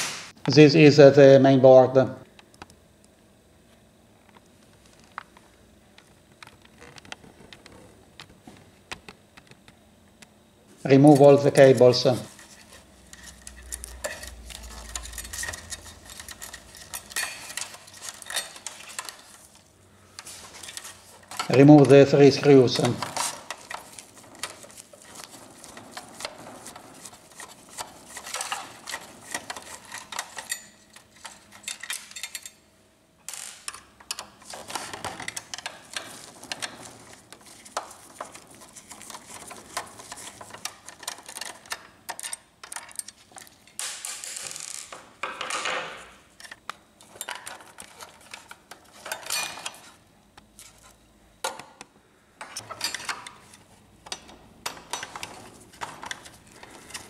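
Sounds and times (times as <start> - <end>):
long metal scraping: 11.2 - 19.6.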